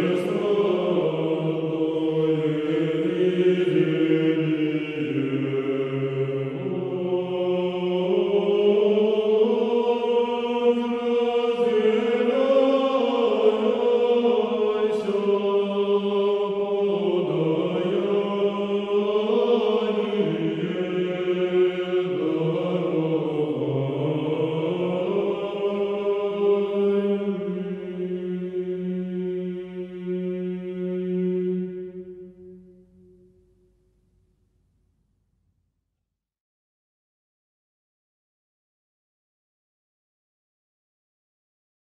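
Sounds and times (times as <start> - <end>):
choir singing slow chant: 0.0 - 33.3.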